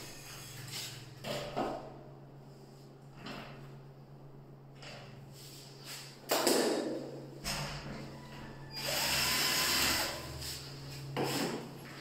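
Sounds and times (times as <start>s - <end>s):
power drill whining: 8.7s - 10.3s.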